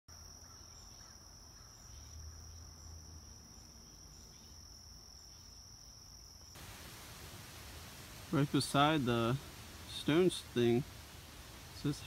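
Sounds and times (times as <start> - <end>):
high-pitched insect trill: 0.1 - 6.6.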